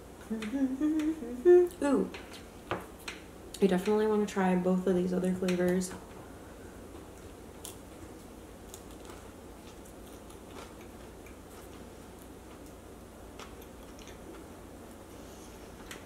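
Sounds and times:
steady low hum: 0.0s - 16.0s
person chewing crunchy pastry: 7.0s - 14.6s.

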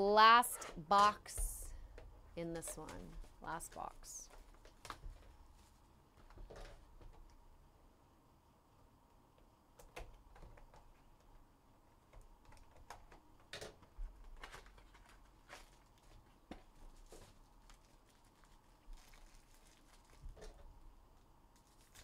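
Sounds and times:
foil wrapper crinkling: 14.3s - 20.6s, 21.5s - 22.0s.

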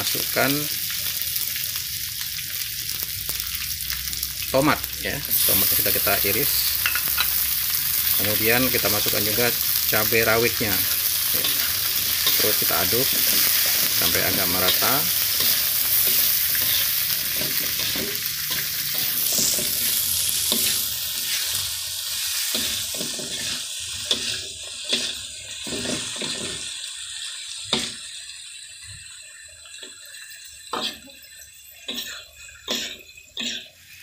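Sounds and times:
vegetables sizzling in a wok: 0.0s - 34.0s
spatula scraping and knocking pan: 11.3s - 21.6s, 22.4s - 26.6s.

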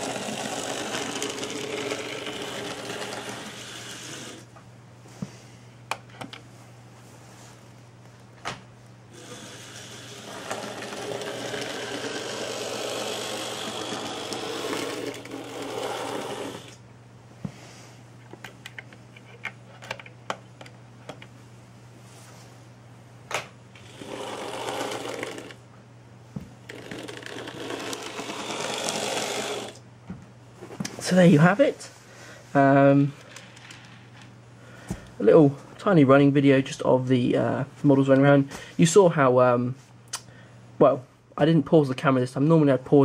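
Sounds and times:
model train motor whirring: 0.0s - 4.5s, 9.1s - 16.8s, 23.8s - 25.6s, 26.7s - 29.8s
low steady hum: 0.0s - 43.0s.

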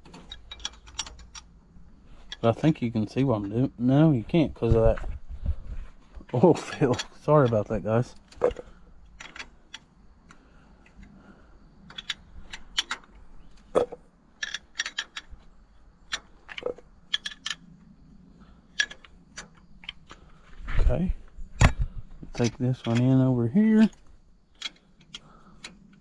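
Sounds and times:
wrench clinking on bolts: 0.1s - 1.6s, 13.7s - 15.4s.

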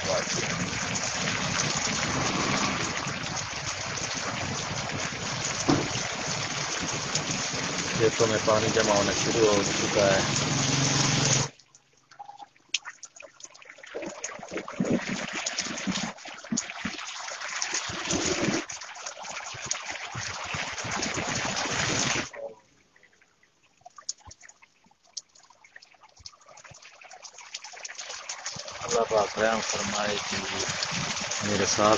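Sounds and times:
heavy rain on flooded ground: 0.0s - 11.5s, 29.6s - 31.9s
water dripping and trickling: 0.0s - 31.9s.

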